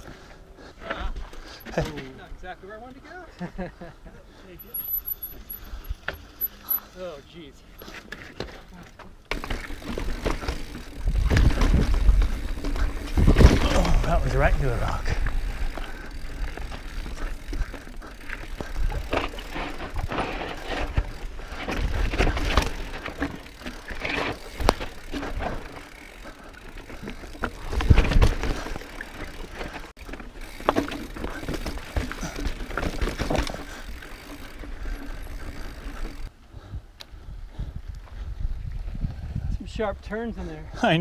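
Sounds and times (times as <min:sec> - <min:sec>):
bike jolt: 0:00.0 - 0:02.3, 0:04.6 - 0:36.3
mountain bike rattling over rocks: 0:00.9 - 0:02.5, 0:04.6 - 0:36.3
tyre noise: 0:07.8 - 0:36.3
wind on microphone: 0:36.7 - 0:39.7.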